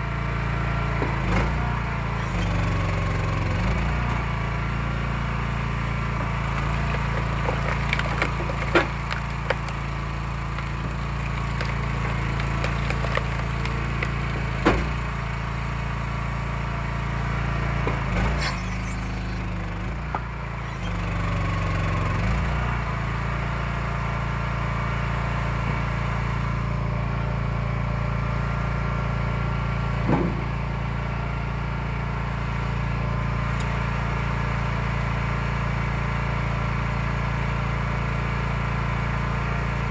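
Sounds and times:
wood splitter engine running: 0.0s - 39.9s
wood cracking and splintering: 6.0s - 15.4s.

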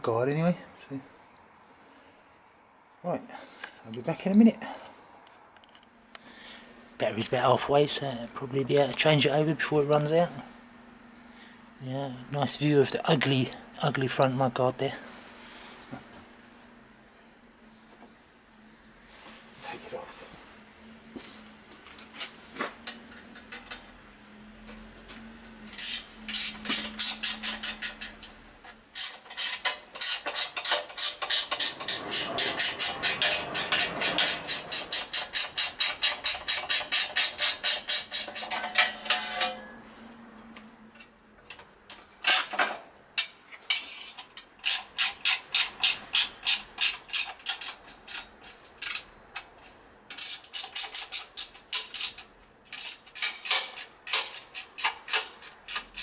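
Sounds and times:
ratchet wrench clicking: 25.8s - 28.3s, 29.0s - 38.4s, 44.6s - 49.1s.

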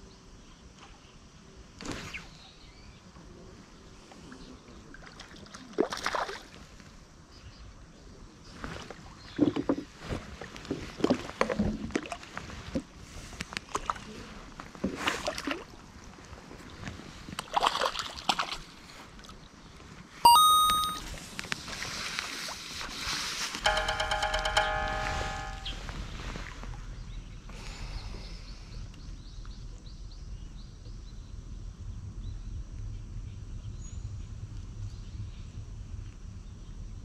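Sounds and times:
short bright chime: 20.3s - 21.0s, 23.7s - 25.9s.

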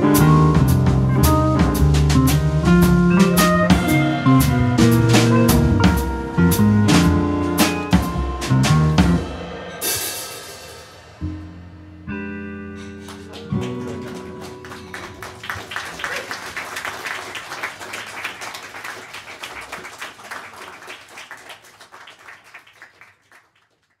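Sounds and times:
jazz band chord ringing: 0.0s - 15.3s
audience applause: 13.0s - 24.0s.

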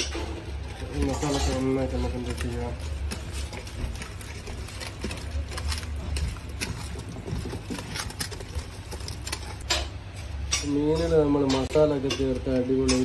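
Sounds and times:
paste squelching: 0.4s - 9.7s.

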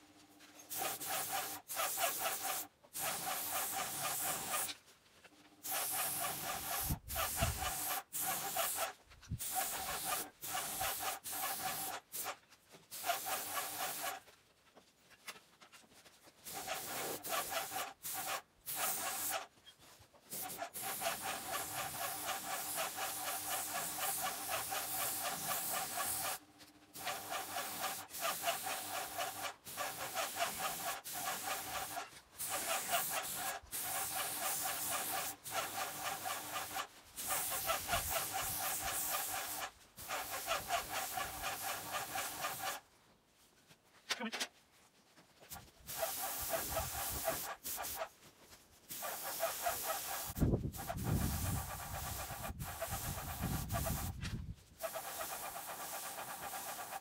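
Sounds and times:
paint sprayer hissing: 0.7s - 4.8s, 5.6s - 14.3s, 16.4s - 19.5s, 20.3s - 42.8s, 45.5s - 48.1s, 48.9s - 54.2s, 54.8s - 57.0s.

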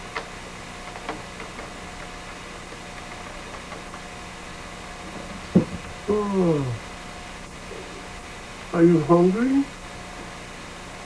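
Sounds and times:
low hum: 1.6s - 10.2s.

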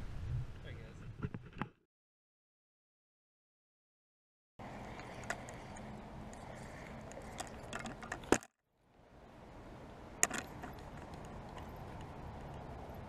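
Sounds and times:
fishing reel clicking and rattling: 4.9s - 8.4s
steady background hiss: 8.8s - 13.0s.

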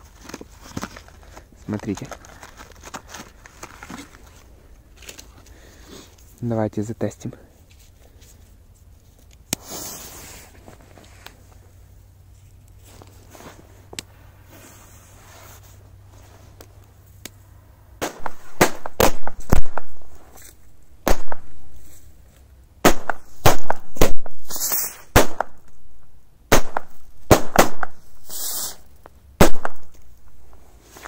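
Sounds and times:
short bursts of hissing: 9.6s - 10.6s, 24.5s - 25.1s, 28.2s - 28.9s
firecrackers banging: 18.0s - 20.4s, 21.0s - 21.9s, 22.8s - 25.8s, 26.5s - 30.6s.

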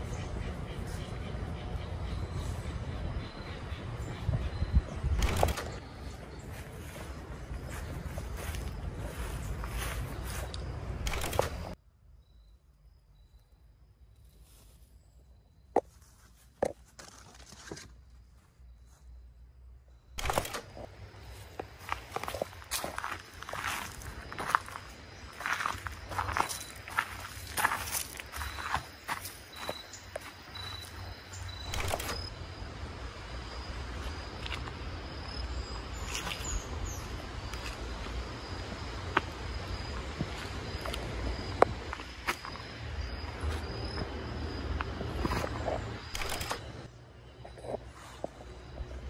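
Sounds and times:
footsteps on garden path: 5.8s - 11.8s, 14.2s - 19.1s, 20.7s - 31.8s, 33.9s - 49.0s
bird chirps: 24.4s - 32.3s.

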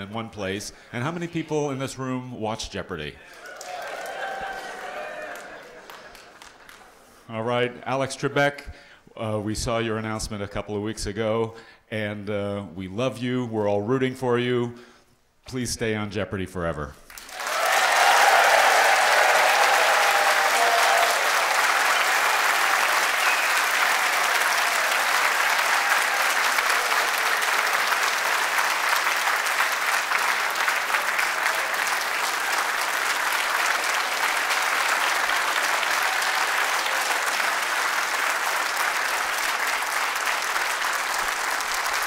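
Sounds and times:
large audience applauding: 3.2s - 7.2s, 17.1s - 42.0s.

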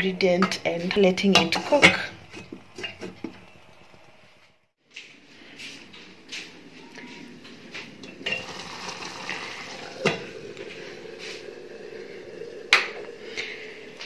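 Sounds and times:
saucepan simmering hiss: 8.2s - 14.0s.

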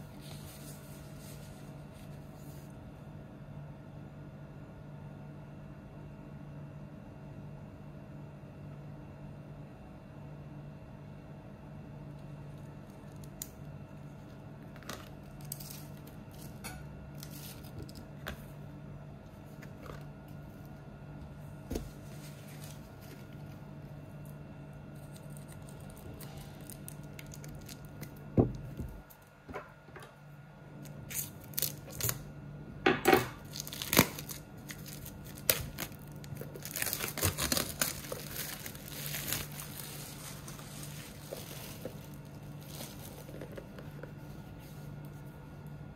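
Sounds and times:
steady low hum: 0.0s - 45.9s
plastic and cardboard tearing: 31.1s - 32.2s, 33.4s - 43.8s.

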